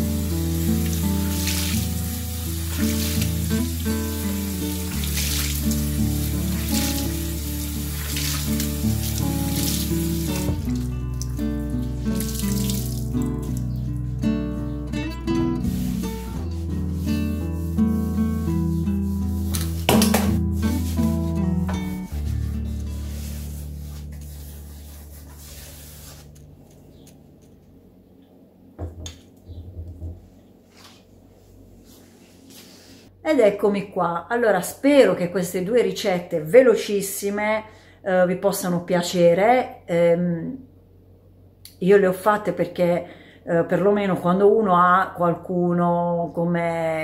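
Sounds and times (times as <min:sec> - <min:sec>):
running water: 0:00.0 - 0:13.9
instrumental background music: 0:00.0 - 0:26.1.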